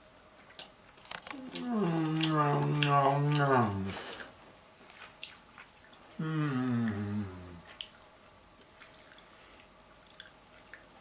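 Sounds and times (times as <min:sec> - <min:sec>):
faint chewing clicks: 0:00.4 - 0:06.0, 0:06.7 - 0:11.0
man humming mmm: 0:01.3 - 0:04.3, 0:06.2 - 0:07.7.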